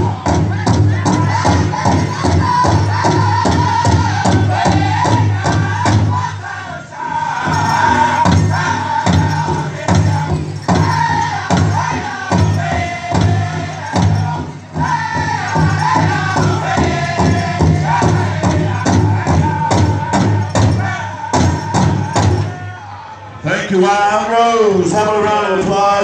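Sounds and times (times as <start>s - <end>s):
large drum steady beat: 0.0s - 22.6s
group singing in high voices: 0.0s - 23.5s.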